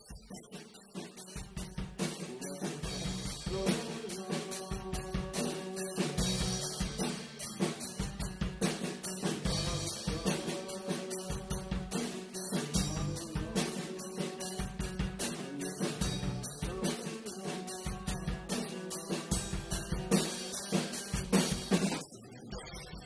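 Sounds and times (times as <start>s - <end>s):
drum kit beat: 0.0s - 22.1s
guitar and bass: 6.2s - 10.4s, 11.5s - 13.6s, 15.9s - 16.7s.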